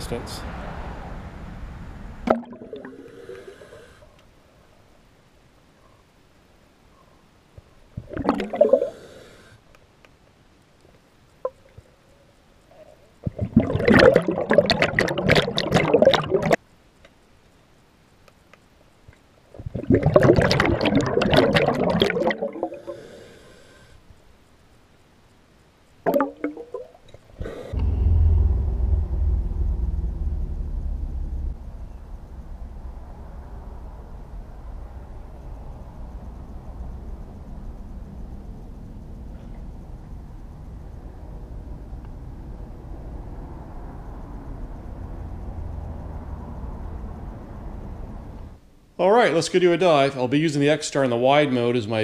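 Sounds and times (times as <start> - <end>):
diver exhaling bubbles underwater: 2.2 - 3.9, 8.0 - 9.3, 13.2 - 16.6, 19.6 - 23.2, 26.1 - 27.9
steady low rumble: 27.6 - 48.5.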